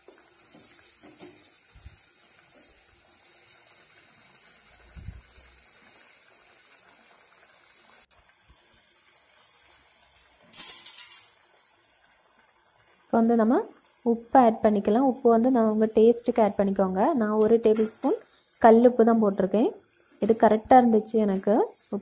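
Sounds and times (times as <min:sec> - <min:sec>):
food sizzling in a pot: 0:00.0 - 0:22.0
scrape in a pot: 0:10.1 - 0:11.4.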